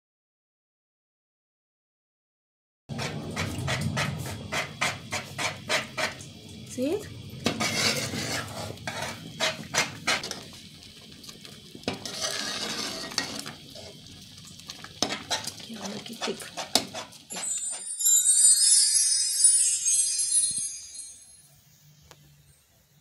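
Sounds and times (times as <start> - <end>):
metal ladle scraping a pot: 2.9 - 6.3, 7.4 - 10.5, 11.8 - 14.0, 14.7 - 18.0
porridge bubbling: 2.9 - 18.1.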